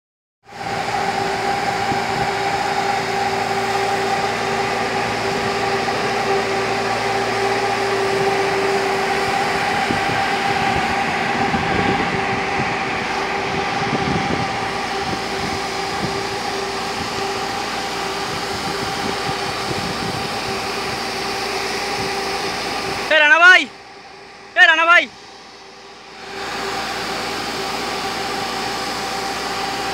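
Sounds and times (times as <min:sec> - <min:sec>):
diesel fire pump running: 0:00.4 - 0:29.9
water jet rushing from nozzle: 0:00.5 - 0:23.8, 0:26.0 - 0:29.9
constant tone: 0:00.5 - 0:29.9.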